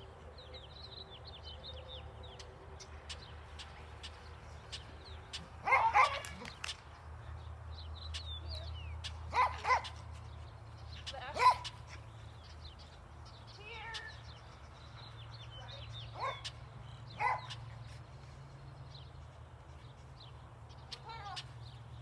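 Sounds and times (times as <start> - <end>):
dog barking: 5.6 - 6.3, 9.3 - 10.0, 16.2 - 16.5, 17.2 - 17.6.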